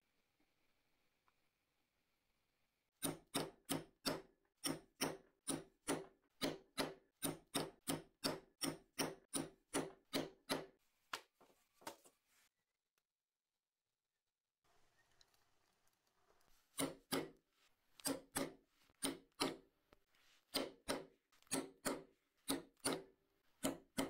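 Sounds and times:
mallet striking chisel through leather: 3.0s - 10.8s, 16.7s - 17.4s, 18.0s - 19.7s, 20.5s - 24.0s.

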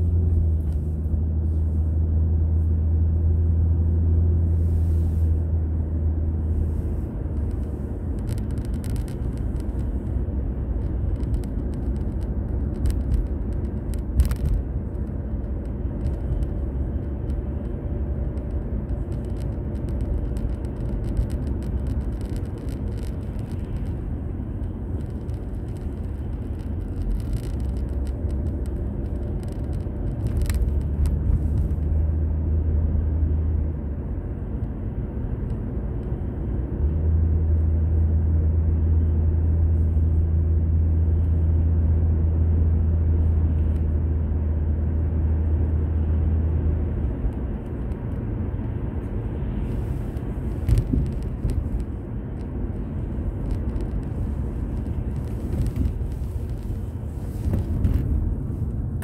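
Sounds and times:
road and engine rumble: 0.0s - 59.0s.

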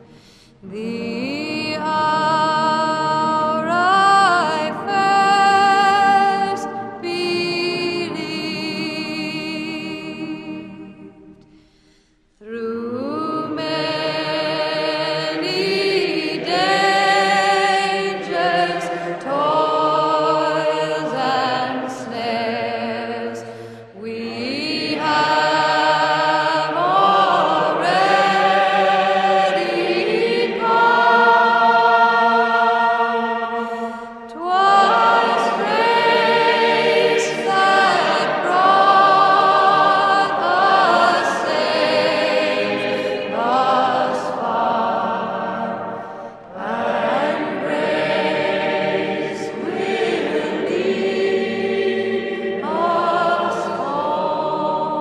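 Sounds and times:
choir singing sustained chords: 0.0s - 55.0s.

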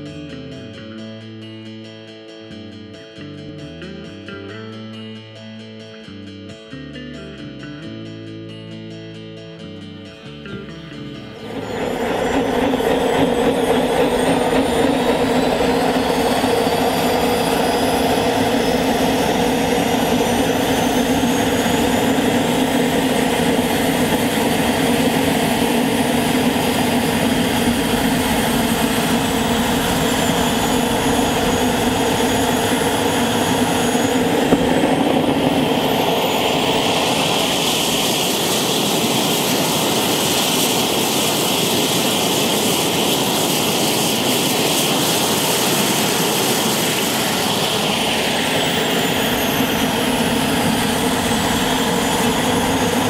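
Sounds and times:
high turbine whine: 10.0s - 53.0s
jet engine roar: 11.2s - 53.0s.

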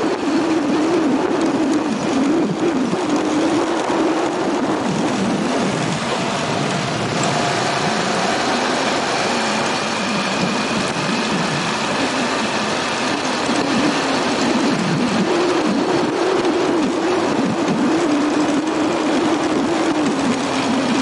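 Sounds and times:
motorbike engine running: 0.0s - 21.0s
wind and road noise: 0.0s - 21.0s.

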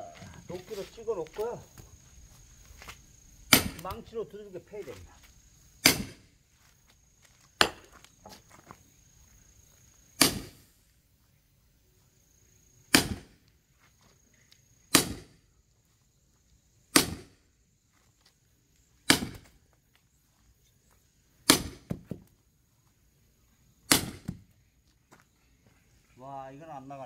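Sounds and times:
sledgehammer striking axe head: 3.5s - 3.9s, 5.8s - 6.2s, 16.9s - 17.3s, 19.1s - 19.5s, 23.9s - 24.4s.

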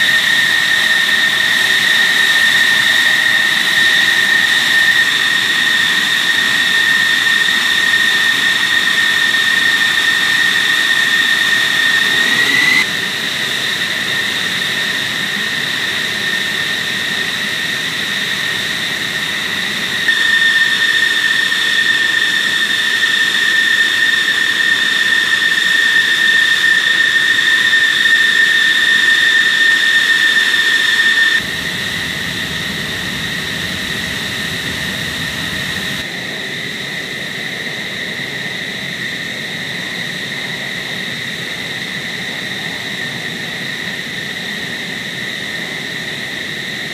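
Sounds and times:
jet engine idling: 0.0s - 37.0s.

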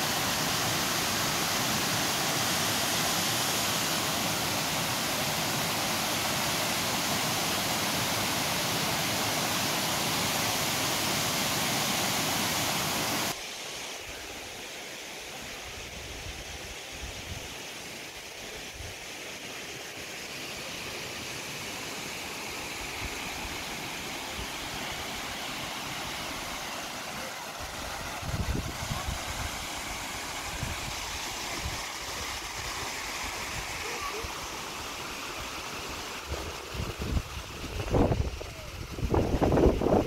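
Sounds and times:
waterfall rushing: 0.0s - 16.2s, 17.8s - 40.0s
wind buffeting microphone: 36.7s - 40.0s.

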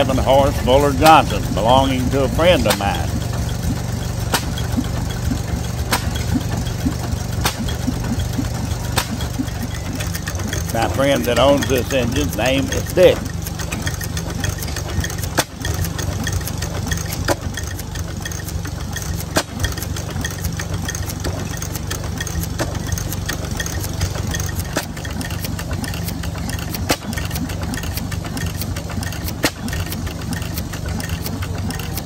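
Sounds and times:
stationary gas engine running: 0.0s - 32.0s
sharp click: 5.9s - 8.0s, 9.0s - 9.5s.

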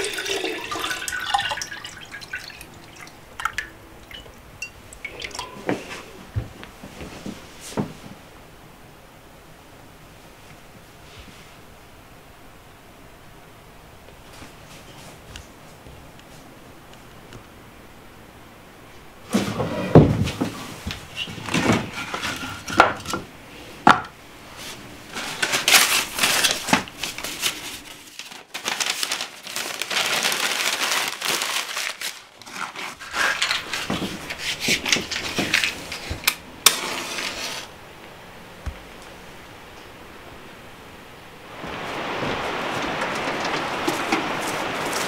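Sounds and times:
newspaper rustling and crumpling: 24.6s - 37.7s, 41.5s - 45.0s.

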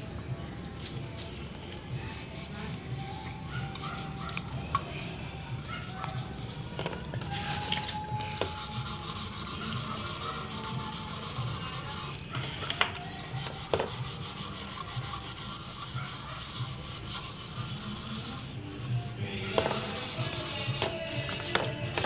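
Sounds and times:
scouring pad scrubbing brass: 7.3s - 12.3s, 13.2s - 22.0s.

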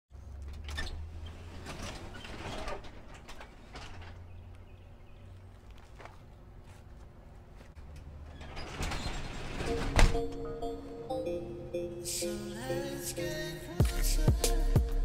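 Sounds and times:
garage door rolling up: 0.5s - 4.4s, 7.8s - 10.6s
panels and rollers rattling: 0.5s - 4.5s, 7.8s - 10.4s.

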